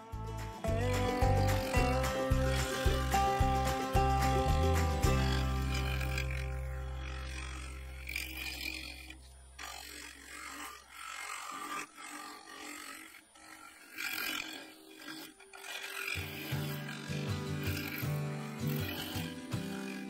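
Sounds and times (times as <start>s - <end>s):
music with pulsing beat: 0.0s - 6.3s
low music drone: 0.0s - 9.7s
lathe tool cutting scraping hiss: 0.6s - 20.0s.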